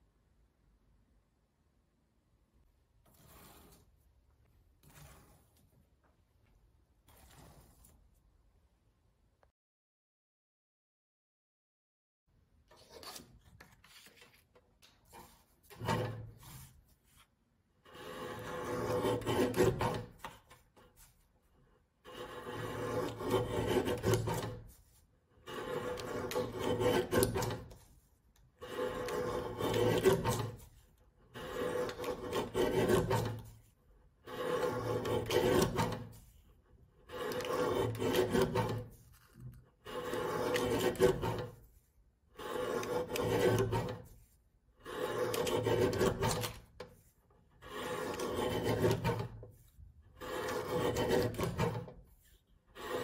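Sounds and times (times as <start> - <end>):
paper cutter shearing card: 3.0 - 4.0, 4.8 - 5.6, 7.0 - 8.1, 12.7 - 21.2, 22.0 - 53.0.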